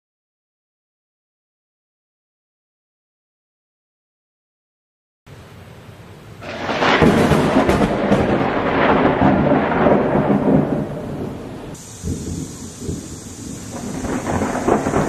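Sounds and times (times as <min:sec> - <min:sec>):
sharp thunder cracks: 0:06.4 - 0:15.0
thunder rolling rumble: 0:06.4 - 0:15.0.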